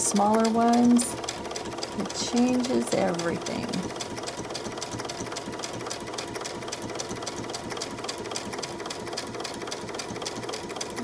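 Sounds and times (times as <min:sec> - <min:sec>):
sewing machine stitching: 0:00.0 - 0:11.0.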